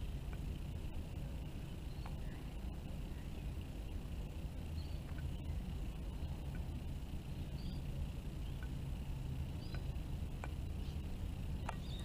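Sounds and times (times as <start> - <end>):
low background rumble: 0.0 - 12.0
beaks pecking plate clicks: 0.2 - 0.5, 1.9 - 2.4, 4.8 - 5.4, 8.4 - 8.8, 9.6 - 10.8, 11.6 - 12.0.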